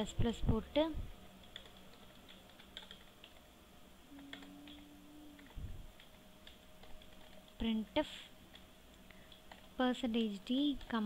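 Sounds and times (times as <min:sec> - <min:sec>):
keyboard typing: 0:01.4 - 0:03.5, 0:04.1 - 0:07.8, 0:08.5 - 0:11.0.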